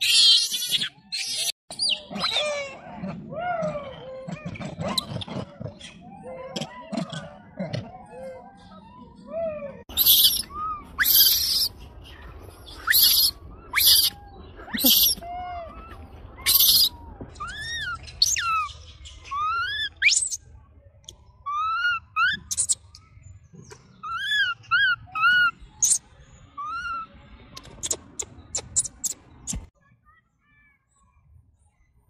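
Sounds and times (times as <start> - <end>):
baby macaque cooing: 0.0 - 11.8, 12.8 - 18.7, 24.0 - 26.0.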